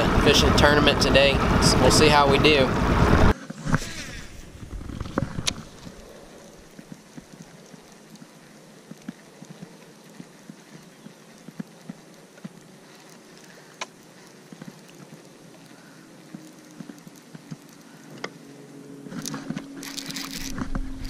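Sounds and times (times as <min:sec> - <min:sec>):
faint reeling taps and ticks: 0:06.7 - 0:18.5.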